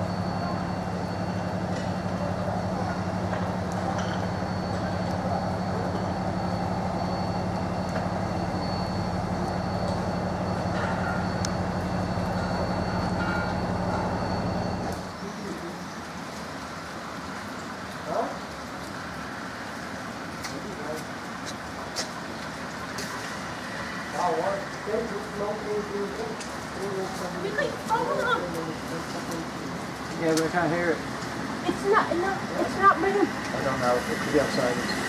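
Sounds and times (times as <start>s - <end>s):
train hum with faint whine: 0.0s - 18.0s.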